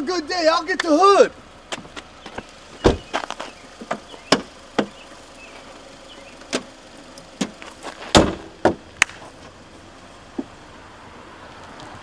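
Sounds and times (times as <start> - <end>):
deep thud: 2.8 - 3.2, 8.1 - 8.8
car hood knocks and clunks: 2.8 - 5.0, 7.4 - 8.9
sharp crack: 7.4 - 9.3.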